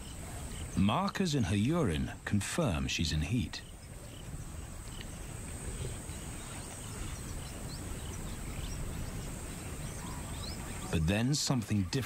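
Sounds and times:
faint bird chirps: 3.6s - 12.0s.

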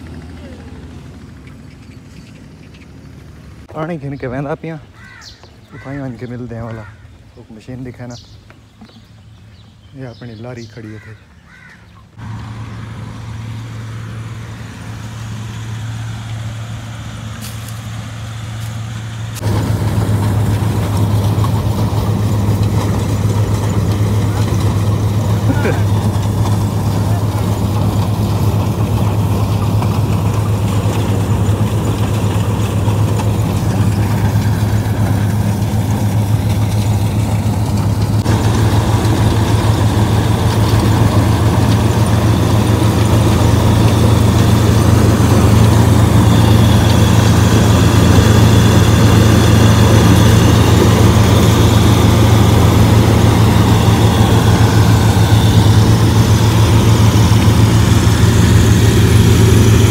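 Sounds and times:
combine harvester engine humming: 0.0s - 59.9s
threshing machinery working: 12.2s - 59.9s.

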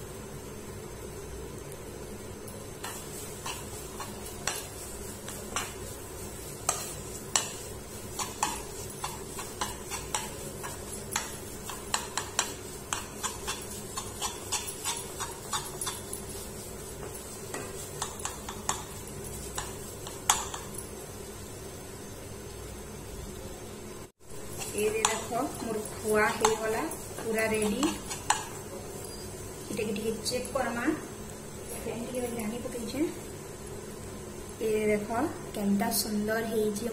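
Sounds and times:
metal spoon scraping a pan: 2.8s - 20.7s, 24.4s - 29.3s.

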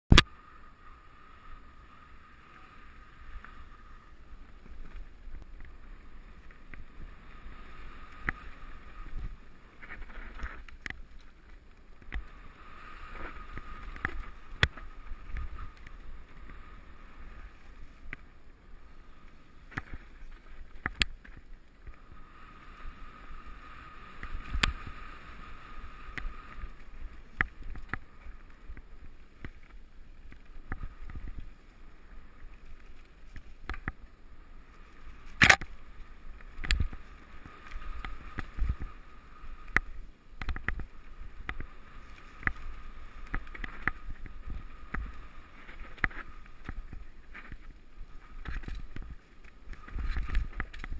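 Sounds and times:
tyres rumbling on dirt trail: 0.1s - 50.9s
wind on microphone: 19.0s - 29.1s, 35.1s - 50.9s.

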